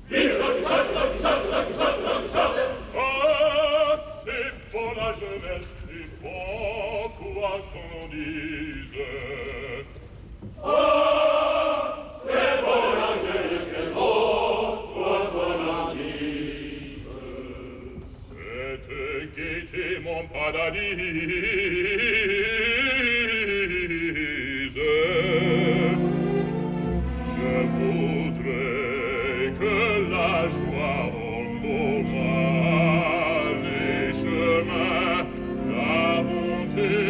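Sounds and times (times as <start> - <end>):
chorus singing: 0.0 - 9.9, 10.6 - 37.0
male operatic voice singing: 0.2 - 10.0, 17.3 - 26.4, 27.2 - 37.0.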